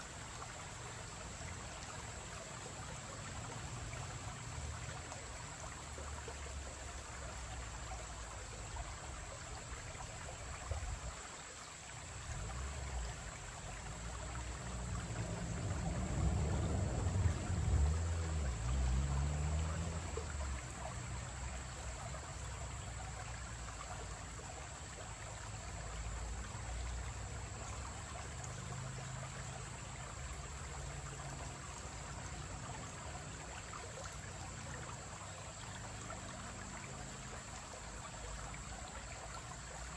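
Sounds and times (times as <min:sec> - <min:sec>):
creek trickling over rocks: 0:00.0 - 0:39.9
vehicle rumbling over bridge: 0:12.2 - 0:23.1.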